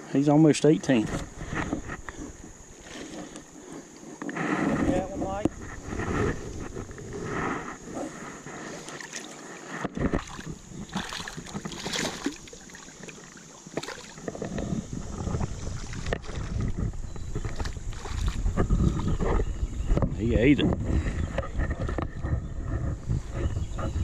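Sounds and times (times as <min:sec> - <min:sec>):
water splashing around legs: 0:08.7 - 0:14.5, 0:15.5 - 0:18.6
fish splashing at surface: 0:10.1 - 0:14.2.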